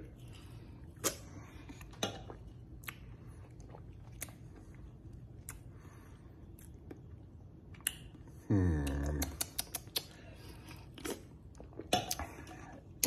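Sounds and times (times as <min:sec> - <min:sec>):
low room hum: 0:00.0 - 0:13.0
lip smacks and tongue clicks: 0:01.8 - 0:04.4, 0:05.1 - 0:05.7, 0:07.7 - 0:12.7.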